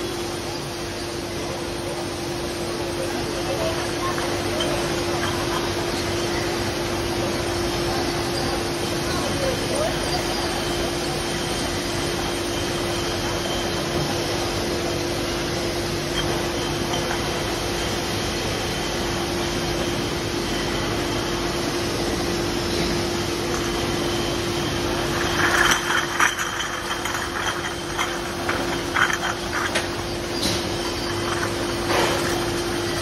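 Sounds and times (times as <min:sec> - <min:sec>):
machinery drone and hum: 0:00.0 - 0:33.0
glass bottles clinking: 0:03.0 - 0:15.0, 0:16.0 - 0:18.0, 0:23.0 - 0:33.0.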